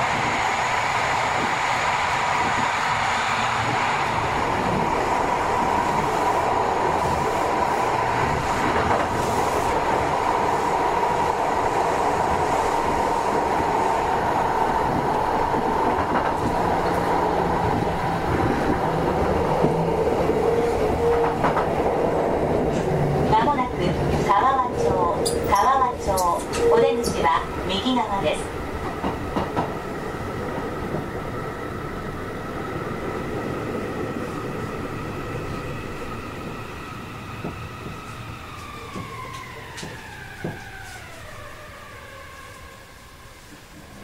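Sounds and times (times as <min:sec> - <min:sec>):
train wheel running noise: 0:37.4 - 0:41.4.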